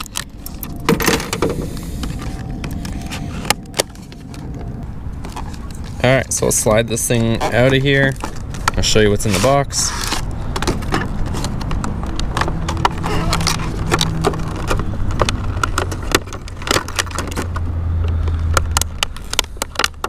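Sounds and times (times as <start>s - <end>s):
low steady rumble: 0.0s - 9.3s
plastic packaging crackling: 0.0s - 17.6s.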